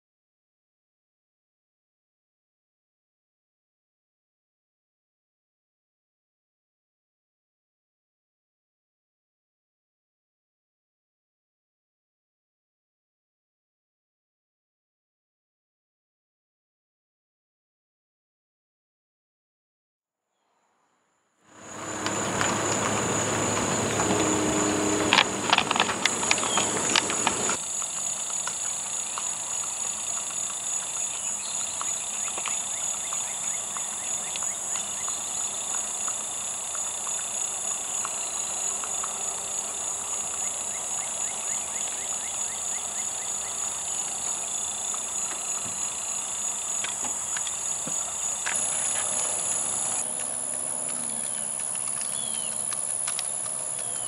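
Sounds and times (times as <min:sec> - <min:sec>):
car passing: 0:21.5 - 0:31.0
hoofbeats on pavement: 0:21.5 - 0:54.0
insects droning: 0:21.5 - 0:54.0.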